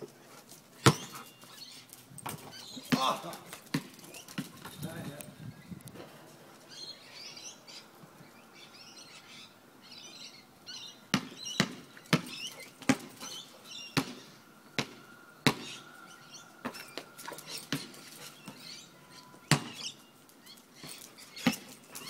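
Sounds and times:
birds chirping: 0.0s - 22.0s
basketball bouncing on hard court: 11.2s - 13.2s, 19.5s - 19.8s.

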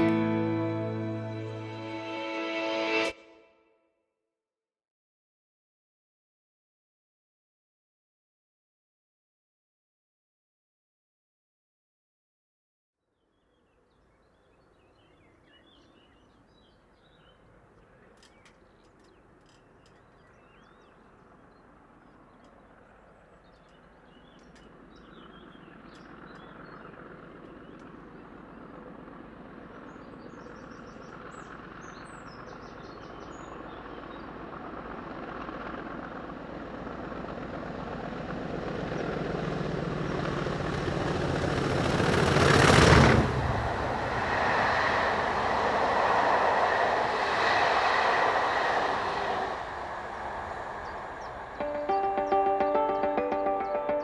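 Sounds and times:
diesel train approaching: 0.0s - 3.2s, 32.6s - 54.0s
birds chirping: 13.3s - 28.9s, 50.8s - 54.0s.

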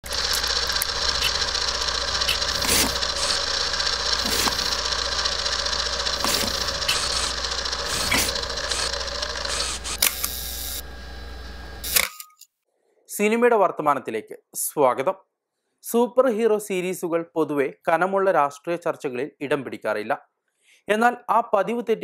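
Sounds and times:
film projector clatter and whir: 0.0s - 12.2s.

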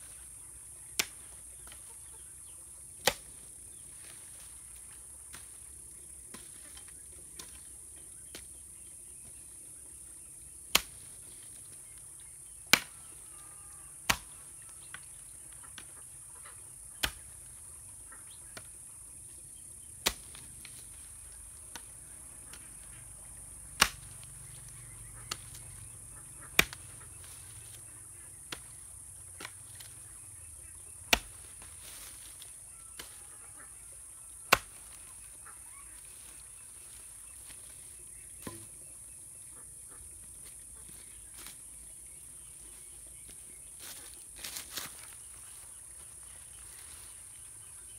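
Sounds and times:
hoe chopping into soil: 3.0s - 7.7s, 10.7s - 11.2s, 14.0s - 15.0s, 16.9s - 17.6s, 19.8s - 22.9s, 23.8s - 33.2s, 34.4s - 35.2s, 38.4s - 38.8s.

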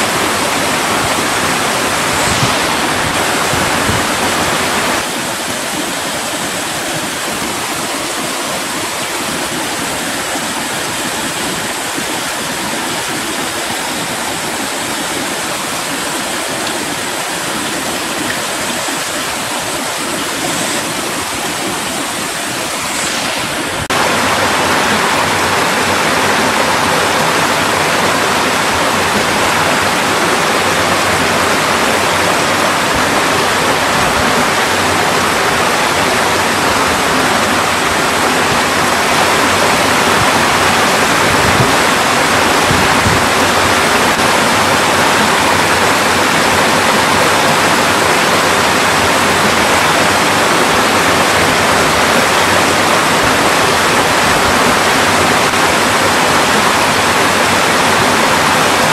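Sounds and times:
stream rushing over rocks: 0.0s - 58.9s.

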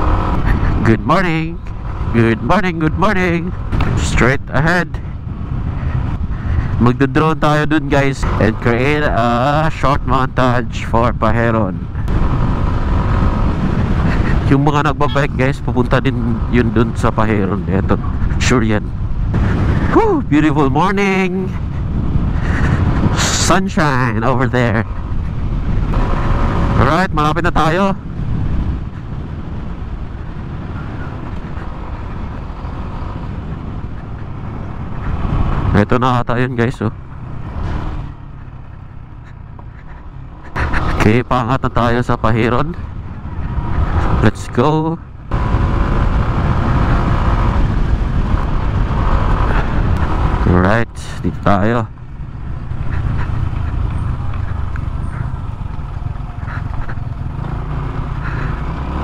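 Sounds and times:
wind and road noise: 0.0s - 59.0s
scooter engine running: 51.9s - 59.0s.

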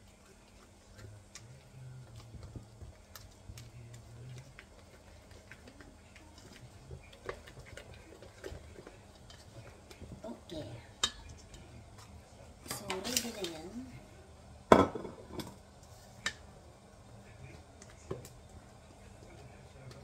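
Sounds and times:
faint low hum: 0.0s - 20.0s.

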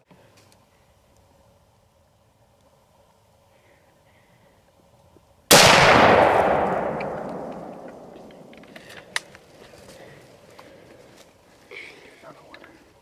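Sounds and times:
rifle shot echoing: 5.5s - 8.8s.

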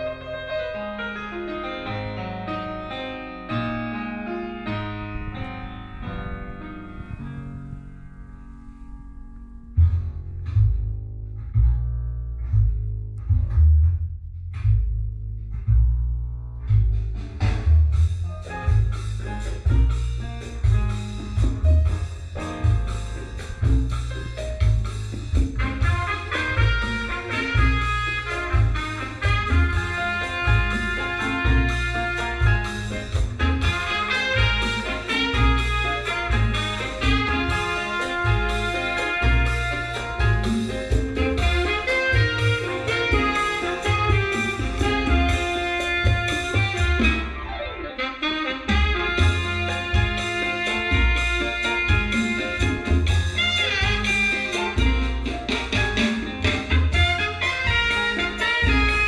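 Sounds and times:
piano music through speakers: 0.0s - 14.2s, 14.8s - 59.0s.

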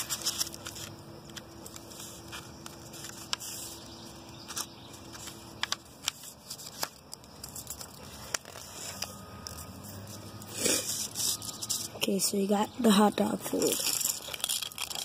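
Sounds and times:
sharp crackly paper ticks: 0.0s - 9.7s, 13.5s - 15.0s
paper rustling and creasing: 0.0s - 12.3s, 13.4s - 15.0s.

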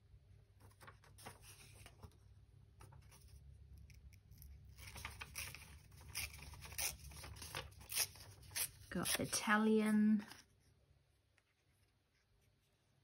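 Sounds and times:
paper rustling: 0.5s - 3.4s, 4.7s - 9.4s.

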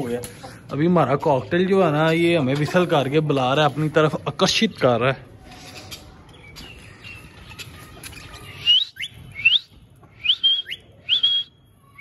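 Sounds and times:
cockatiel whistling: 8.6s - 12.0s.

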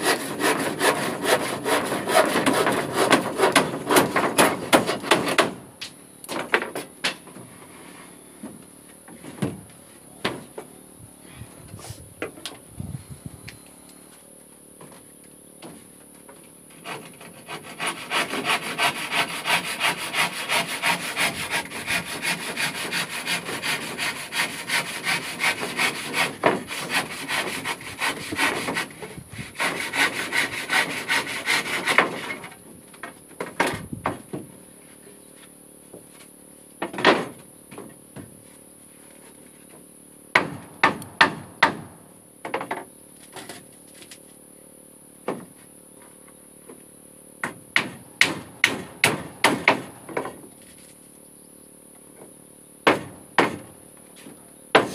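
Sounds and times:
handsaw cutting wood: 0.0s - 5.6s, 16.7s - 32.6s
sharp knocks: 47.4s - 50.4s, 52.8s - 53.7s.

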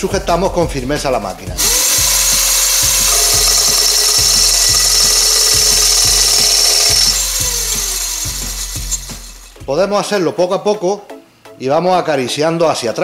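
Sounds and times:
saw disc cutting wood: 1.6s - 9.7s.

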